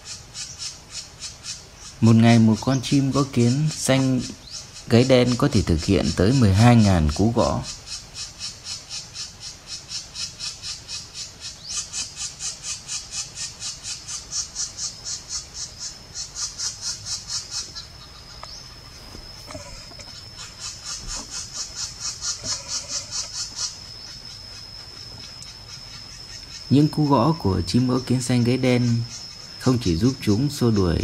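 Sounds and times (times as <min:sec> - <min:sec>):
woodpecker nestling begging calls: 0:00.0 - 0:31.0
thin high whine: 0:17.1 - 0:31.0.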